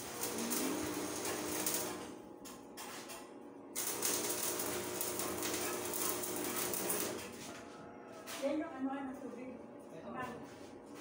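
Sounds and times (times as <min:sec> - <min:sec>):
welding arc crackling and hissing: 0:00.0 - 0:02.2, 0:03.7 - 0:07.4.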